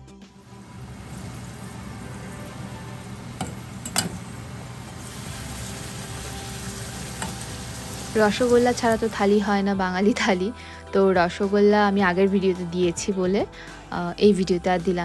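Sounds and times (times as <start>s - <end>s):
food deep-frying in oil: 0.4s - 9.5s.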